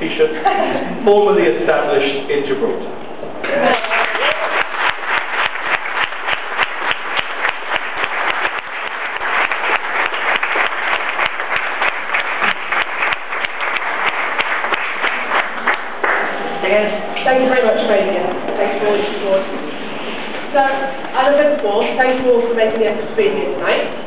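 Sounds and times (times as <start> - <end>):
audience applauding: 3.4 - 16.7.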